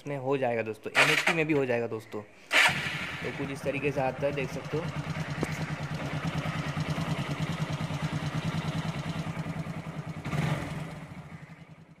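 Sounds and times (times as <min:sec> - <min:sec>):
motorcycle engine idling: 0:02.6 - 0:12.0.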